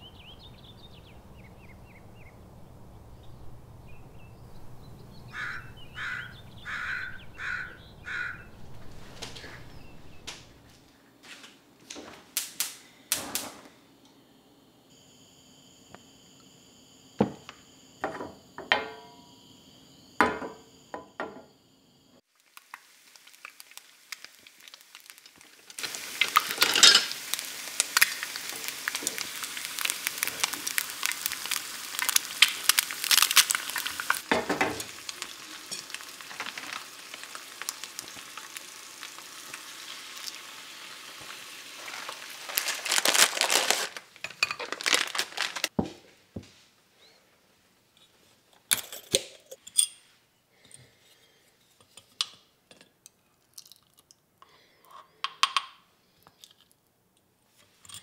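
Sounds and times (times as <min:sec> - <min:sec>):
egg sizzling in a pan: 0:22.2 - 0:45.7
plastic bag crinkling: 0:22.9 - 0:34.3, 0:34.9 - 0:45.8.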